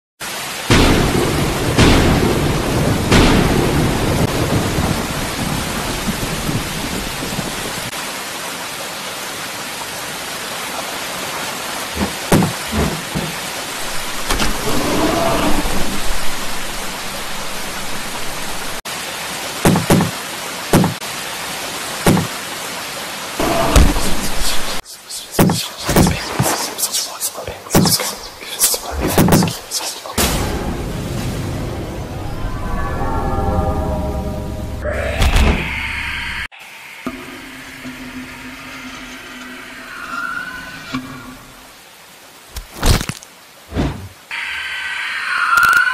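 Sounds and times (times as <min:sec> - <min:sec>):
heavy rain: 0:00.2 - 0:45.9
thunder cracks and rumble: 0:00.7 - 0:07.9
loud dull knocks: 0:12.0 - 0:13.4, 0:19.6 - 0:20.1, 0:22.1 - 0:22.3.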